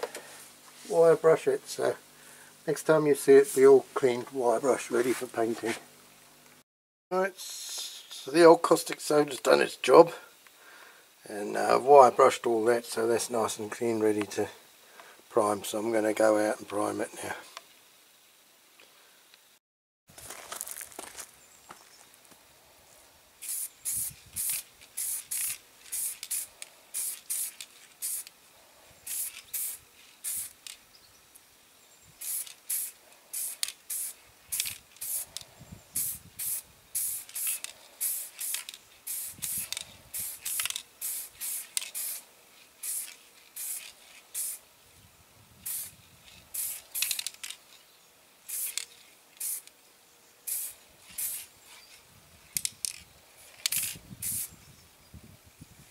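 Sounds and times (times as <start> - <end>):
aerosol spray can hissing bursts: 23.4 - 28.4, 29.0 - 30.8, 32.2 - 44.7, 45.6 - 47.4, 48.5 - 49.7, 50.5 - 51.5, 53.4 - 54.5.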